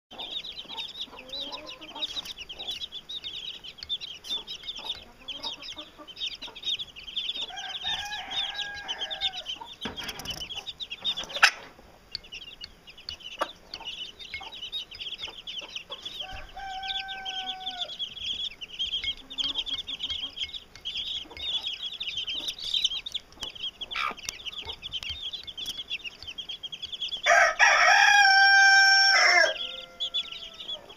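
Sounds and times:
chicks peeping: 0:00.1 - 0:30.9
hen clucking: 0:00.1 - 0:30.9
rooster crowing: 0:07.4 - 0:09.5, 0:16.2 - 0:18.0, 0:27.2 - 0:30.9.

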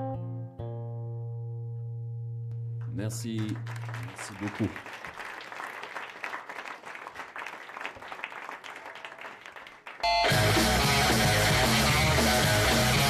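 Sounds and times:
loud guitar music: 0:00.0 - 0:03.1, 0:10.0 - 0:13.0
audience applauding: 0:03.0 - 0:13.0.

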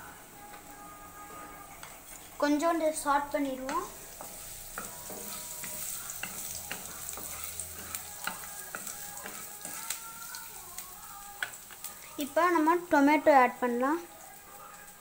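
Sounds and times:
wooden spatula scraping a pan: 0:01.2 - 0:10.4
garlic sizzling in hot oil: 0:01.8 - 0:15.0.

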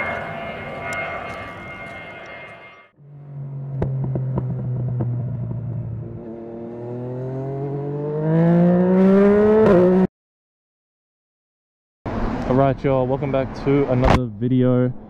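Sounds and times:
motorcycle engine accelerating: 0:03.0 - 0:10.1.

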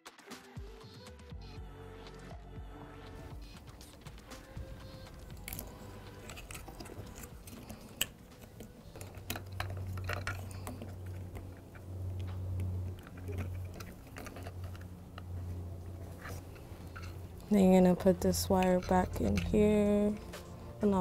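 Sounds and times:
low hum: 0:02.7 - 0:21.0
plastic clicks and rustles: 0:04.8 - 0:20.8.

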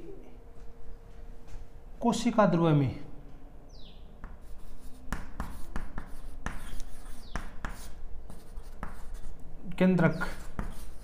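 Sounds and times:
chalk writing on a chalkboard: 0:04.2 - 0:09.4, 0:10.0 - 0:11.0.

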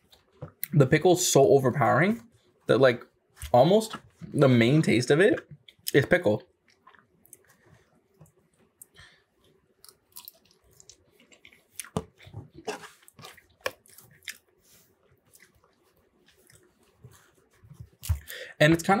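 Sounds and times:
quiet chewing: 0:05.5 - 0:18.5.

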